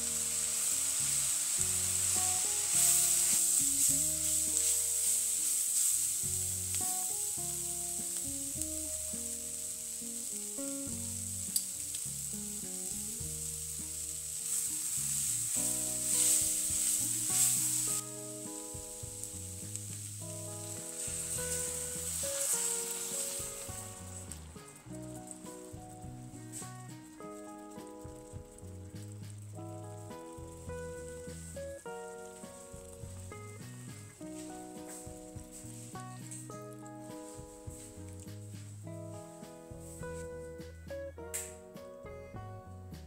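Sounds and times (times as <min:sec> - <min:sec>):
onions sizzling in a hot pot: 0:00.0 - 0:40.7
spatula stirring in a pot: 0:00.1 - 0:13.2, 0:13.8 - 0:24.6.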